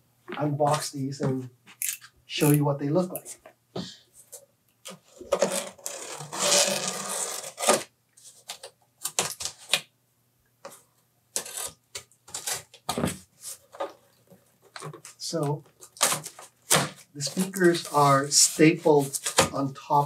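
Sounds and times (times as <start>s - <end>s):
packing tape ripping: 5.2s - 7.9s.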